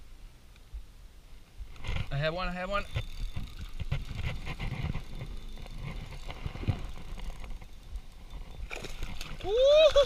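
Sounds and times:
fishing reel cranking: 2.7s - 9.4s.

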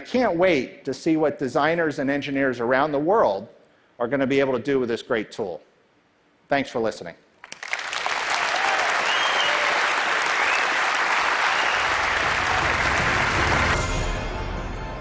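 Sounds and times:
large audience applauding: 7.4s - 14.0s
audience cheering: 7.6s - 13.9s
outro music with low beat: 11.9s - 15.0s.

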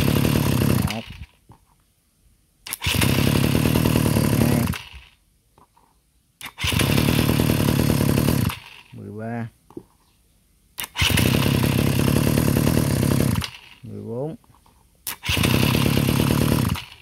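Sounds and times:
brush cutter engine: 0.0s - 1.4s, 2.7s - 5.1s, 6.4s - 9.0s, 10.8s - 14.0s, 15.1s - 17.0s
electric starter: 0.0s - 1.4s, 2.7s - 5.2s, 6.4s - 9.0s, 10.8s - 14.0s, 15.0s - 17.0s.

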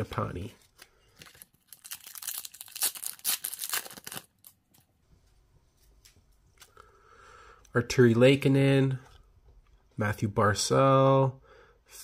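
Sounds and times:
wrapper crinkling: 0.6s - 4.8s.

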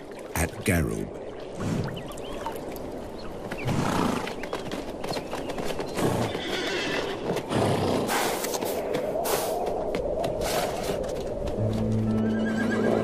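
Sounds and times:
hoof clicks and knocks: 3.4s - 13.0s.

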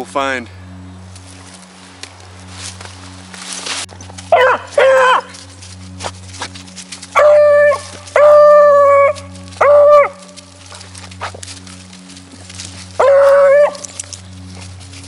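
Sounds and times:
dog baying loudly: 4.3s - 5.4s, 7.1s - 11.4s, 12.9s - 14.2s.

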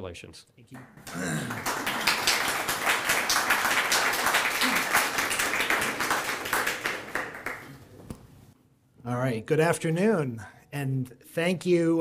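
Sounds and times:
audience applauding: 0.8s - 8.0s.

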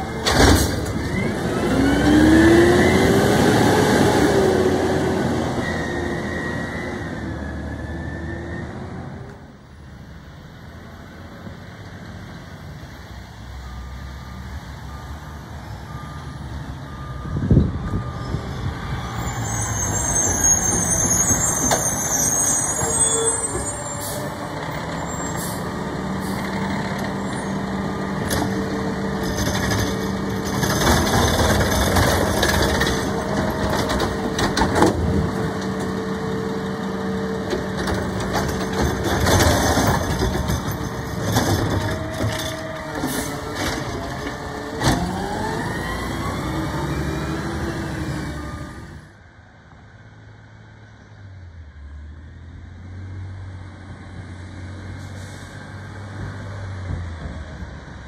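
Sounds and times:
trash cart clattering bangs: 0.2s - 1.1s, 37.9s - 45.1s
air brake hiss: 55.0s - 55.6s.

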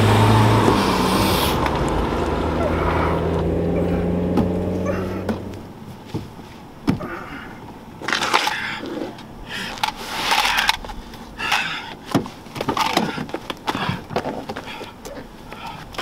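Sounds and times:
man grunting and gasping: 2.5s - 5.6s, 7.0s - 7.6s, 11.4s - 12.0s, 13.0s - 16.0s.

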